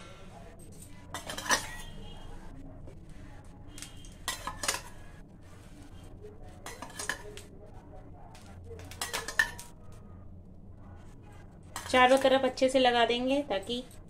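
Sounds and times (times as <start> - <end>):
utensils clinking on cookware: 0.6 - 2.2, 3.8 - 5.0, 6.6 - 7.4, 8.8 - 9.7, 11.8 - 12.4.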